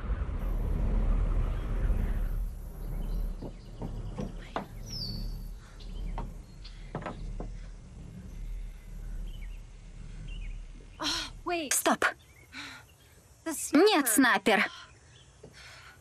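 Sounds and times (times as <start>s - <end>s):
steady low hum: 0.0s - 16.0s
bird chirps: 1.4s - 14.1s.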